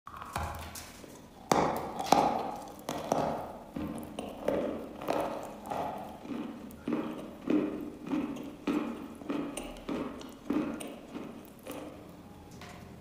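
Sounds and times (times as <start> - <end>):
chalk crunching while chewed: 0.2 - 12.2.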